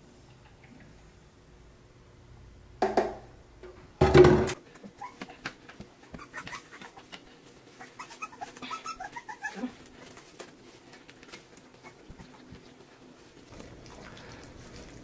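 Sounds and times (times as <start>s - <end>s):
puppy squeaking: 6.1s - 7.2s, 7.8s - 9.8s
puppies lapping wet food: 6.2s - 15.0s.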